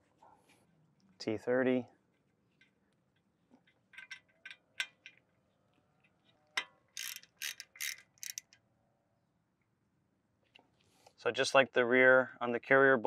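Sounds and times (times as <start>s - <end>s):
hand ratchet clicking: 7.0s - 8.6s.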